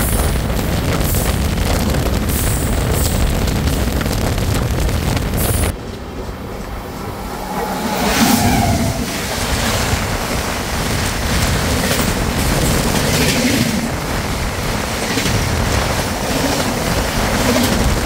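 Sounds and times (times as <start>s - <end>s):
moving passenger train: 0.0s - 18.0s
wind rushing: 2.2s - 18.0s.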